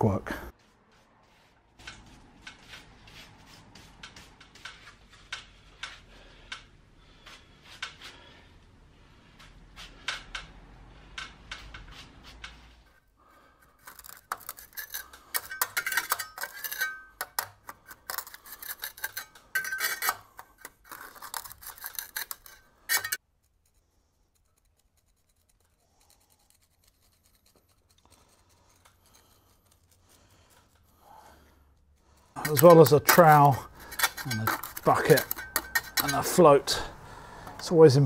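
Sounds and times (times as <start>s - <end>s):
trowel scraping mortar: 11.2s - 37.0s.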